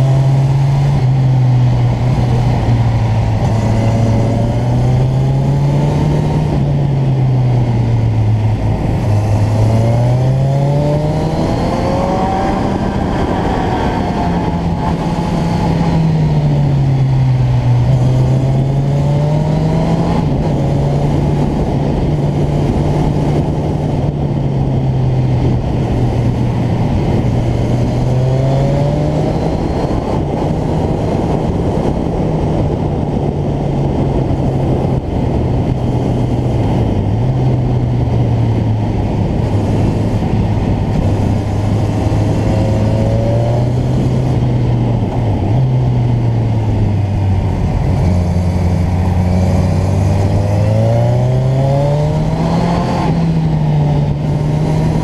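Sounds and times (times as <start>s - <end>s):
motorcycle engine revving: 0.0s - 55.0s
wind and road noise: 0.0s - 55.0s.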